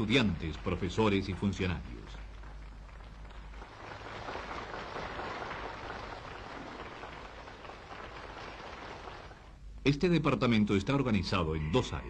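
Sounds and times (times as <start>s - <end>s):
crowd applauding: 0.0s - 9.6s.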